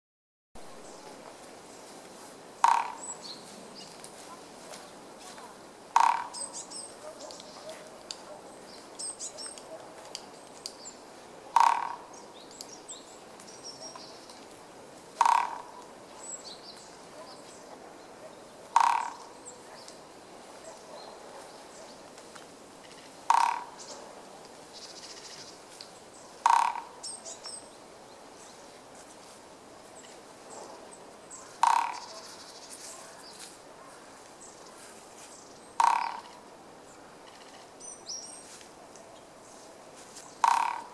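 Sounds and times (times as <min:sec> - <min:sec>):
woodpecker drumming on tree: 0:02.6 - 0:03.3, 0:05.9 - 0:06.7, 0:11.5 - 0:12.2, 0:15.2 - 0:15.9, 0:18.6 - 0:19.5, 0:22.8 - 0:23.9, 0:26.3 - 0:27.2, 0:31.5 - 0:32.3, 0:35.7 - 0:36.5, 0:40.4 - 0:40.9.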